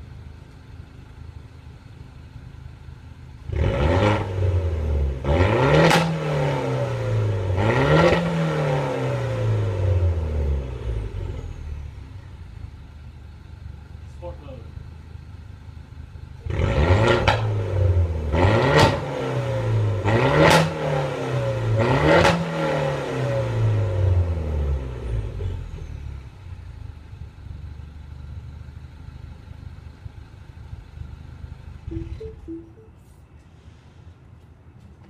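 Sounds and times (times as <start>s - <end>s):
car engine idling: 0.0s - 3.5s, 10.2s - 16.4s, 25.7s - 31.9s
car engine revving with pops: 3.5s - 9.8s, 16.4s - 24.0s.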